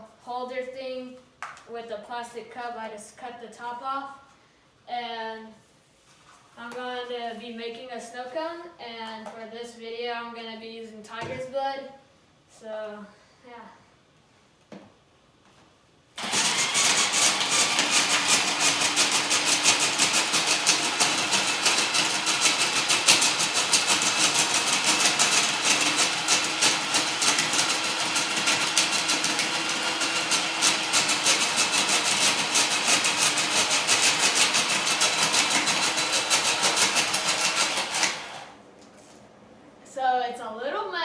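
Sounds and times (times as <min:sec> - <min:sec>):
ice shaver crunching ice: 0:16.2 - 0:38.5.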